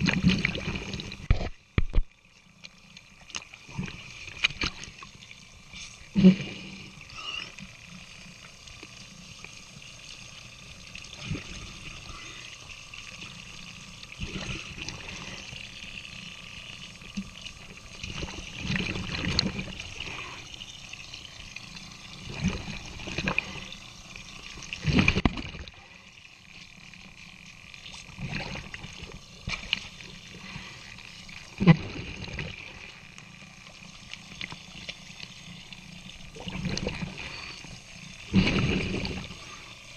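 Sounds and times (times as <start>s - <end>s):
water pouring into water: 0.0s - 1.4s, 10.8s - 33.1s, 34.0s - 39.9s.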